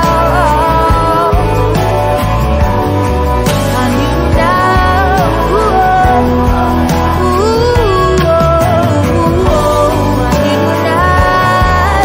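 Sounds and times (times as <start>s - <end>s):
song with sung melody and bass: 0.0s - 12.0s.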